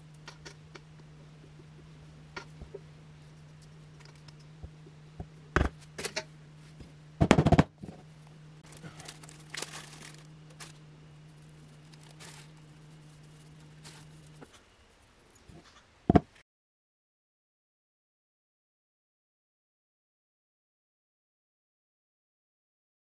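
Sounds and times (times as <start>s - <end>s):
steady low hum: 0.0s - 16.4s
packet crinkling and tearing: 8.6s - 10.8s, 11.9s - 12.6s.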